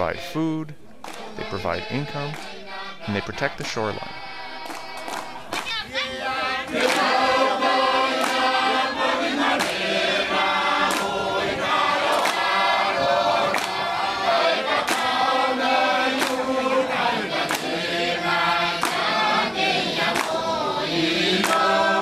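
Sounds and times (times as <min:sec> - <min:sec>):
sharp beat: 0:00.0 - 0:05.9
choir singing in harmony: 0:00.0 - 0:22.0.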